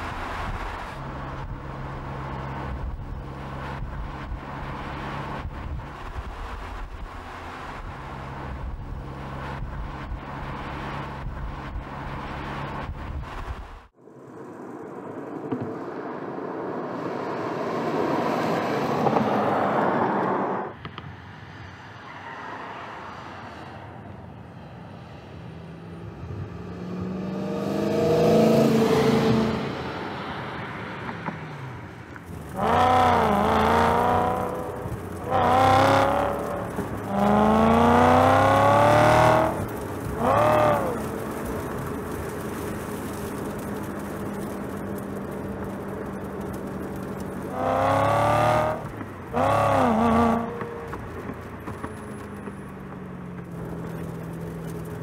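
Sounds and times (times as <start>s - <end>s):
car engine revving: 25.8s - 30.4s, 31.3s - 52.3s.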